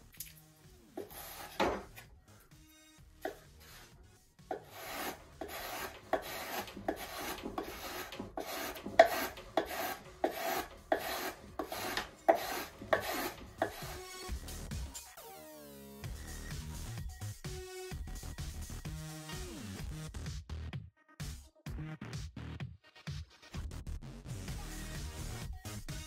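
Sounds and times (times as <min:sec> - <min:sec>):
plane shaving wood: 0:01.0 - 0:02.0, 0:04.5 - 0:14.0.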